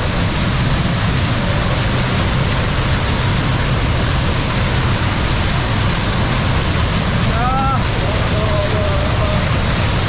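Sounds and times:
waterfall rushing: 0.0 - 10.0.

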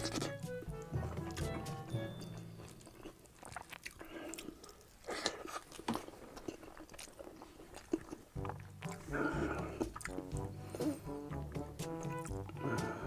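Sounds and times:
background music: 0.0 - 3.3, 8.2 - 13.0
wet chewing and mouth smacks: 0.0 - 12.7.

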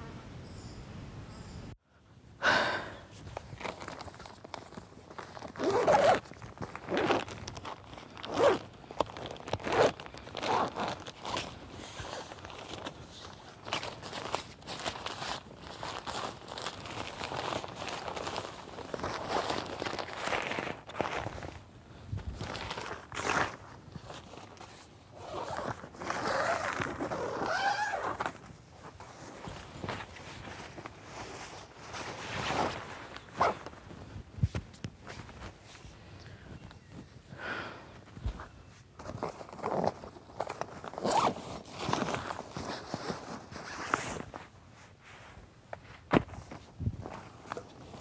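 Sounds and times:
tent zipper being unzipped: 3.4 - 21.6, 22.4 - 34.0, 39.0 - 44.4
zipper being drawn open: 5.5 - 6.2, 6.8 - 7.4, 8.2 - 8.6, 9.5 - 11.4, 25.2 - 28.4, 40.9 - 42.2.

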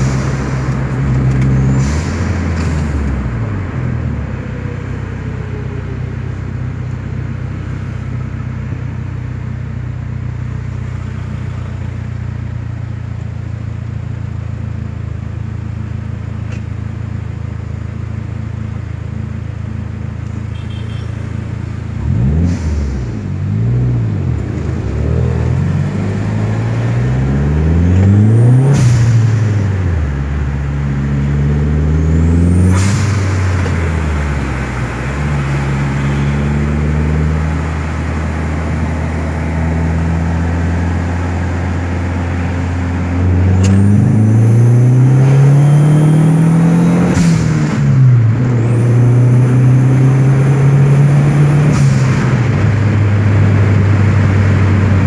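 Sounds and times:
car engine accelerating: 0.0 - 9.5, 21.4 - 55.0.

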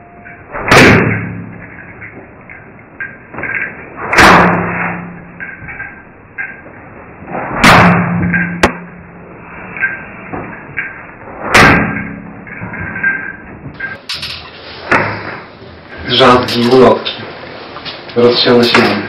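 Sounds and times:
heavy slams with ringing hum: 0.5 - 2.1, 3.3 - 6.6, 7.2 - 9.3, 11.3 - 15.4.

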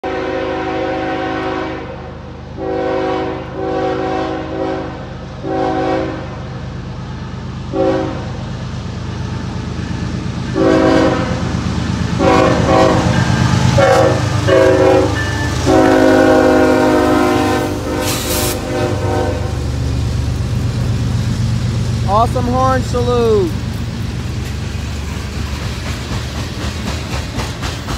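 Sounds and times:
locomotive air horn blasts: 0.0 - 2.0, 2.6 - 6.4, 7.7 - 8.4, 10.5 - 11.4, 12.2 - 19.6
locomotive engine rumbling: 0.0 - 27.9.

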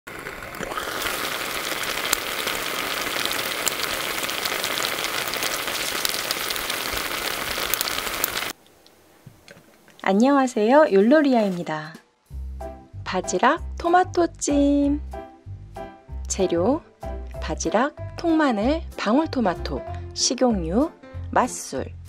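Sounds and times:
clams steaming in a pan: 0.1 - 8.6.

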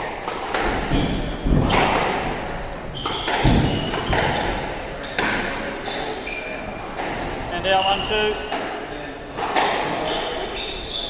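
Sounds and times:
squash ball knocking off walls: 0.3 - 5.6
shoes squeaking on wooden floor: 0.8 - 2.0, 2.6 - 11.0.

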